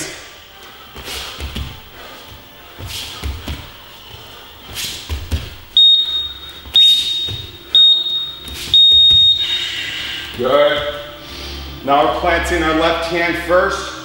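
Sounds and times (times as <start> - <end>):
thuds of hands and feet on mats: 0.9 - 9.5
digital timer beeping: 5.8 - 9.8.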